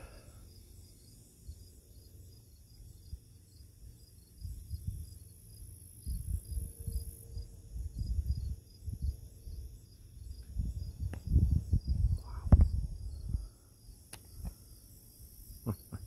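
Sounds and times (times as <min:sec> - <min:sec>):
crickets chirping: 0:00.0 - 0:16.0
high insect buzz: 0:00.0 - 0:16.0
wind rumbling on microphone: 0:04.4 - 0:05.2, 0:06.0 - 0:13.6.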